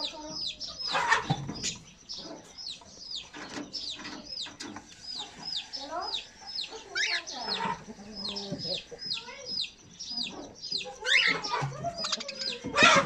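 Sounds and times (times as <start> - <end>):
bird chatter: 0.0 - 13.0
birds chirping: 0.0 - 13.0
harsh bird squawks: 11.0 - 13.0.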